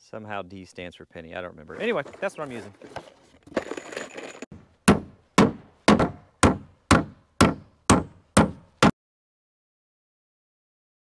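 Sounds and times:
hammer driving nail into wood: 4.9s - 8.9s.

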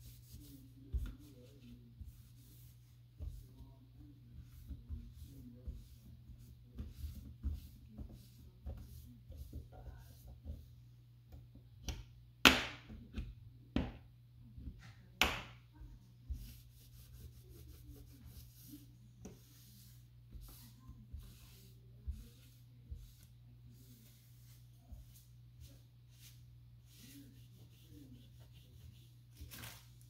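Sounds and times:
cloth rubbing on metal panel: 16.3s - 29.3s.

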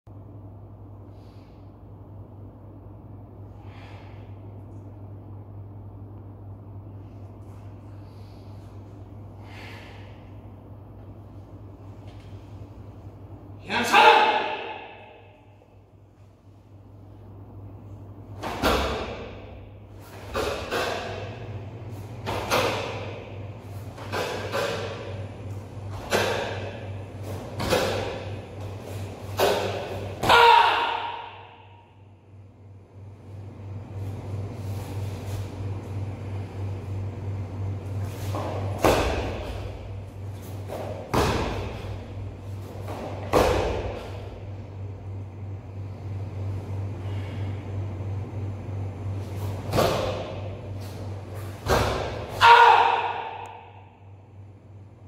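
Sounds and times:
steady low hum: 0.1s - 55.0s
bare feet thudding on foam mats: 38.2s - 44.2s.

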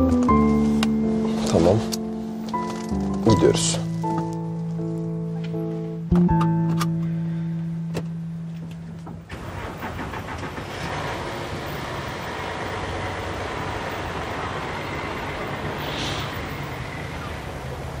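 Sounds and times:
car passing by: 9.9s - 18.0s.

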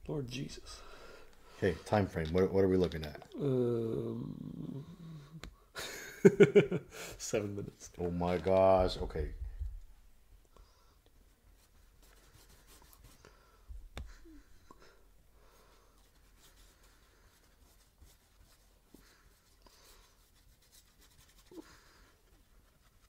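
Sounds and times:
paintbrushes scratching on canvas: 11.4s - 13.3s, 15.6s - 23.0s.

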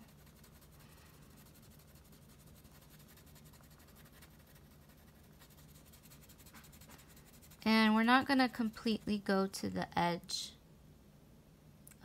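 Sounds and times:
crayon scratching on paper: 0.0s - 9.6s.

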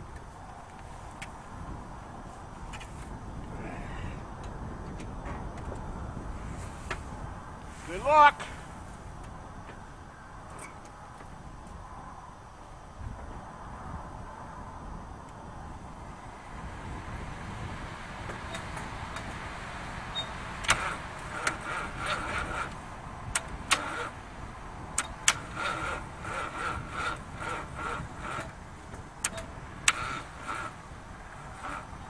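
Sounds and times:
engine cranking on starter: 20.1s - 24.2s, 25.0s - 28.6s, 29.2s - 30.8s, 31.6s - 31.9s
sharp clicks: 20.6s - 24.1s, 25.0s - 25.8s, 29.2s - 30.7s.

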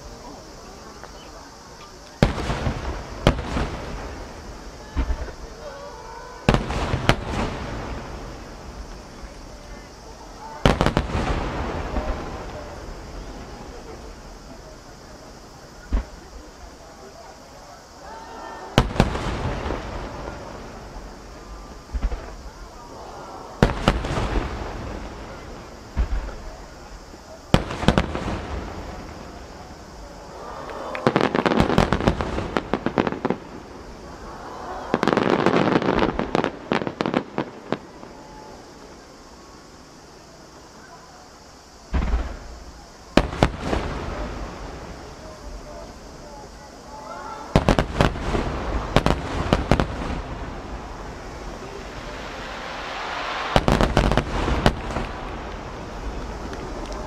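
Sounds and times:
firework bangs: 0.0s - 57.0s
rapid firework bangs and crackles: 0.0s - 57.0s
firework shells bursting: 18.7s - 22.7s, 41.9s - 46.1s, 47.4s - 57.0s.

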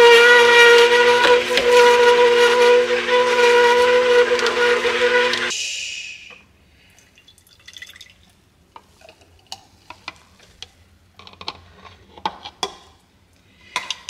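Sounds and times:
juicer motor hum: 0.0s - 5.5s
juice trickling into jar: 6.9s - 8.4s.

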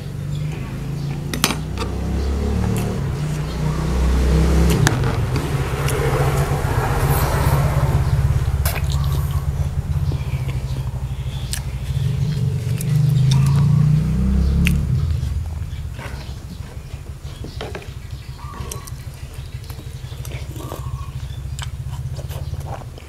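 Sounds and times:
loud low rumble: 0.0s - 22.7s
mouth sounds: 0.6s - 23.0s
person chewing: 11.3s - 14.0s, 19.7s - 23.0s.

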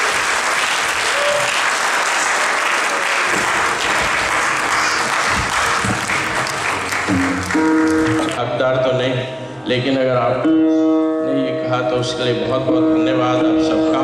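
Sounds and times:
audience applauding: 0.0s - 8.4s.

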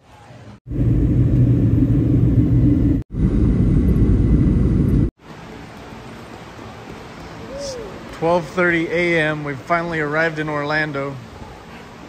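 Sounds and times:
jet engine cabin rumble: 0.7s - 5.2s.

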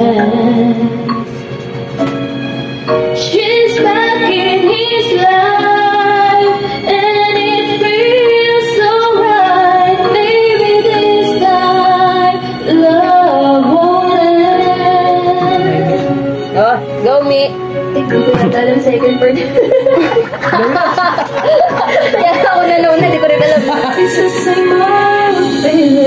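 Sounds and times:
woman singing a ballad: 0.0s - 1.4s, 3.2s - 17.0s, 22.1s - 26.0s
karaoke backing track: 0.0s - 26.0s.

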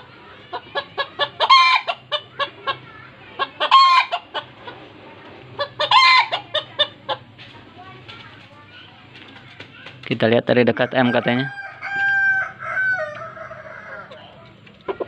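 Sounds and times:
chicken calls: 0.0s - 7.4s, 10.6s - 15.0s
chickens clucking: 0.0s - 15.0s.

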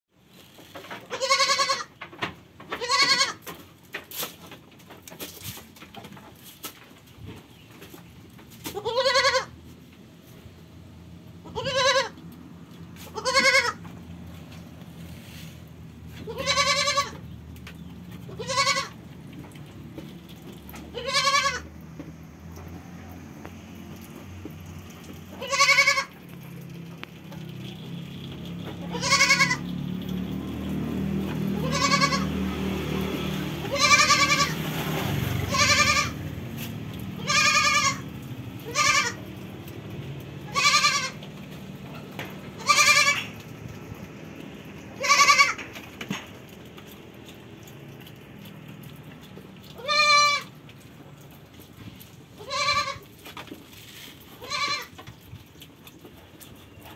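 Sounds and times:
goat bleating: 1.0s - 2.0s, 2.7s - 3.7s, 8.6s - 9.8s, 11.4s - 14.0s, 16.0s - 17.3s, 18.2s - 19.2s, 20.8s - 21.8s, 25.2s - 26.6s, 28.7s - 29.8s, 31.2s - 43.6s, 44.8s - 46.0s, 49.6s - 50.8s, 52.3s - 53.3s, 54.2s - 55.2s.

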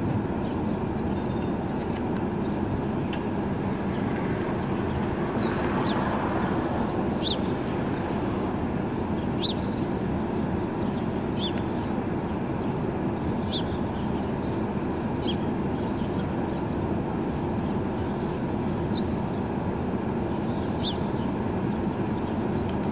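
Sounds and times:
urban traffic rumble: 0.0s - 22.9s
small bird chirping: 10.9s - 11.9s, 20.4s - 21.1s.

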